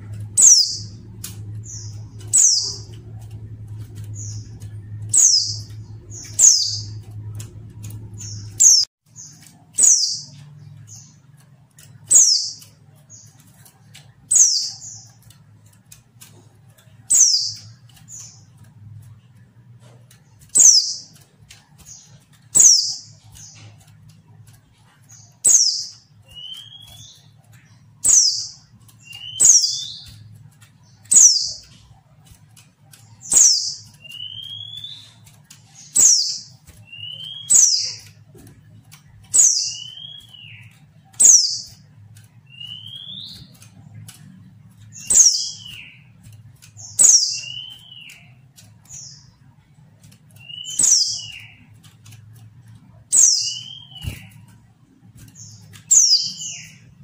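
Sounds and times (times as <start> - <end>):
bird calling: 0.0 - 10.5, 33.3 - 38.2, 39.3 - 41.9, 42.5 - 43.7, 50.4 - 51.7, 53.1 - 54.5.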